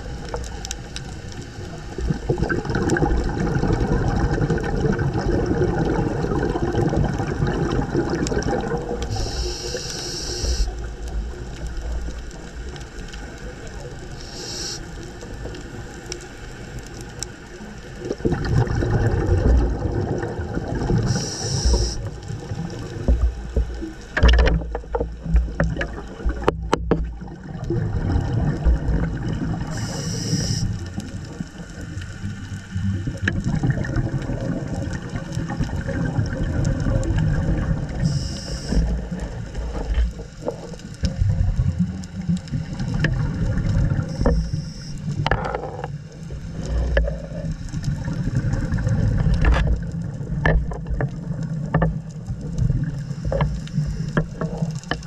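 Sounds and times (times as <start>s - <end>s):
underwater regulator breathing bubbles: 2.1s - 10.9s, 14.2s - 15.0s, 18.3s - 22.1s, 29.6s - 30.8s, 33.4s - 40.7s, 42.6s - 45.9s
short high hiss: 9.1s - 10.7s, 14.2s - 15.0s, 21.1s - 22.0s, 29.8s - 30.8s, 38.0s - 38.8s.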